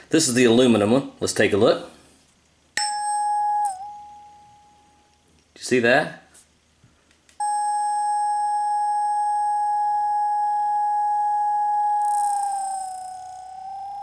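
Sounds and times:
tuning fork ringing: 2.8s - 5.3s, 7.4s - 14.0s.

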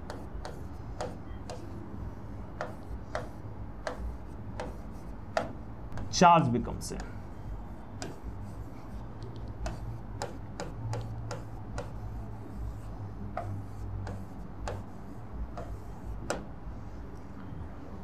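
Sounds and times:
stylus tapping on screen: 0.0s - 1.7s, 2.6s - 6.2s, 8.0s - 12.2s, 12.8s - 16.5s.

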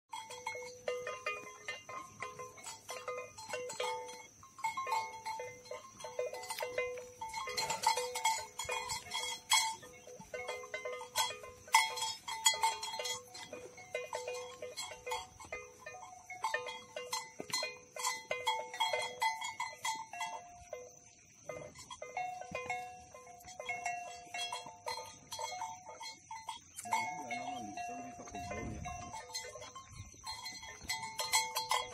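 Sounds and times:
animal bells clanking: 0.1s - 31.9s.

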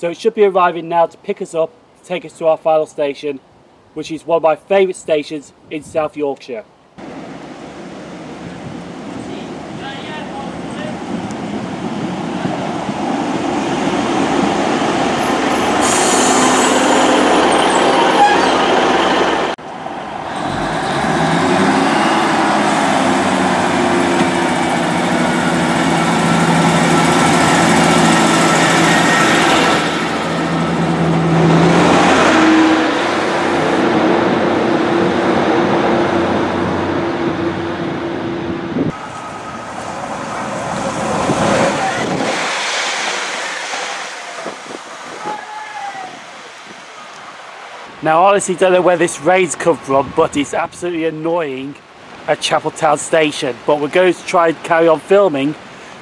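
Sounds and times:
diesel train engines droning: 7.0s - 50.6s
sharp high hiss: 15.5s - 18.0s.

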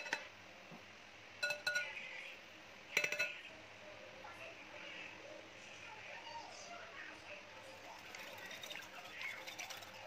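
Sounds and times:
glass bowl clinking: 0.0s - 0.3s, 1.4s - 2.0s, 3.0s - 3.4s, 7.8s - 10.0s.

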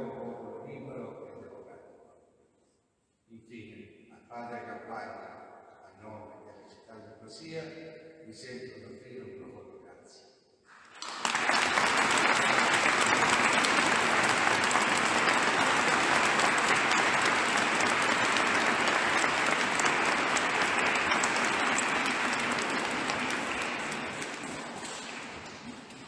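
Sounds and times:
congregation applauding: 10.7s - 26.0s.

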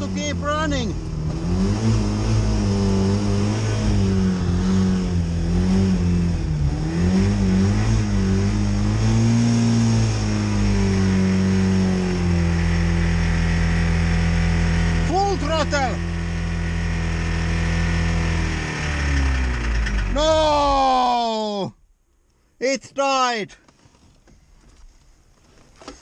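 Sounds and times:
car engine revving: 0.0s - 21.4s.

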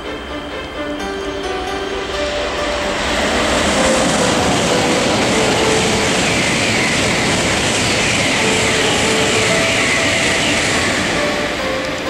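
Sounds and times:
train rushing past: 0.0s - 12.0s.

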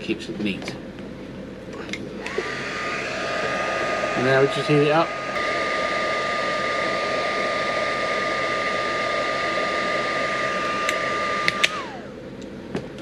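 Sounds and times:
heat gun blowing with motor whine: 2.2s - 12.2s
clicks: 10.8s - 11.8s.

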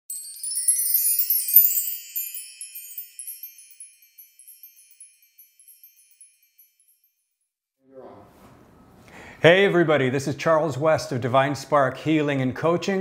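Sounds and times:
tinkling wind chimes: 0.1s - 7.4s.

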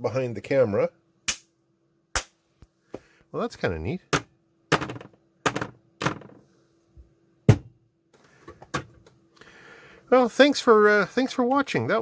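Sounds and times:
sharp hand claps: 2.2s - 2.4s.

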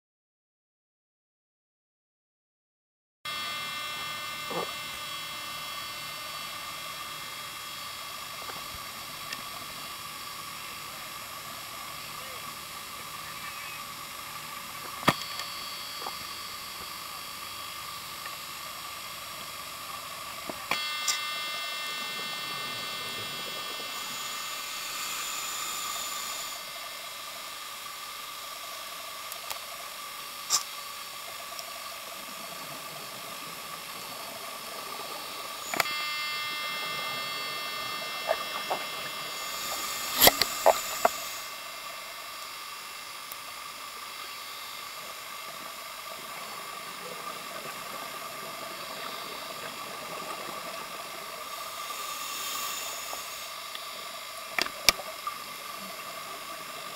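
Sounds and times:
camera hiss and electronic whine: 3.3s - 56.9s
sharp clicks and pops: 30.5s - 30.7s, 39.6s - 41.4s, 54.6s - 55.1s.

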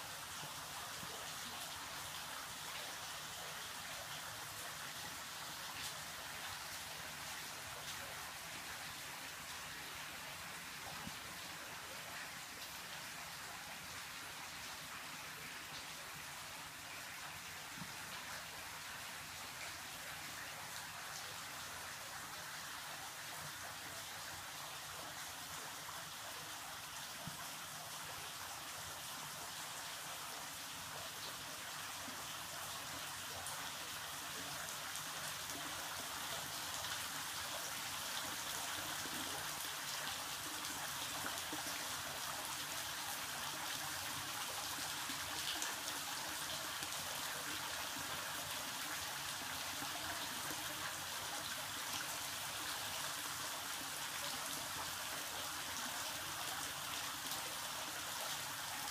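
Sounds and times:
water trickling and dripping: 0.0s - 58.9s.

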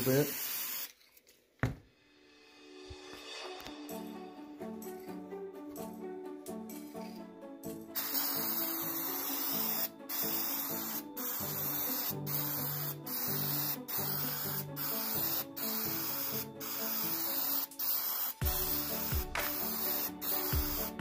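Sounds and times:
aerosol spray can hissing: 0.0s - 1.1s, 6.8s - 21.0s
background music: 1.9s - 21.0s.

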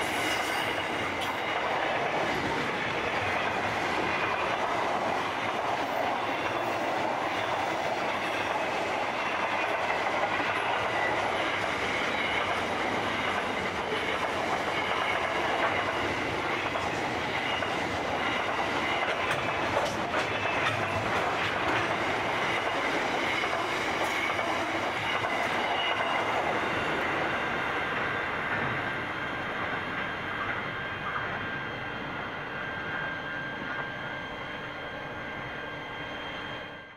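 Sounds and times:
high wheel squeal: 0.0s - 1.5s
train wheels clicking over rail joints: 0.0s - 29.0s.

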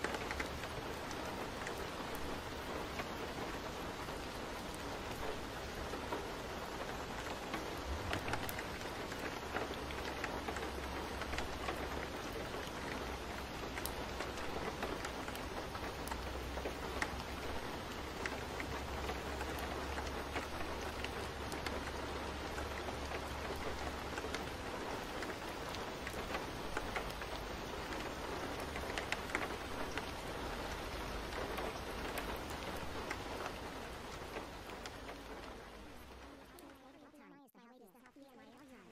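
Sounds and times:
steady rain: 0.0s - 38.9s.

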